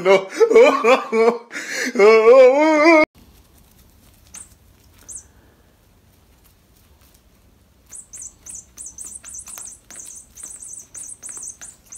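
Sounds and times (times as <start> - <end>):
high-pitched squeaks: 4.3 - 5.3, 7.9 - 11.9.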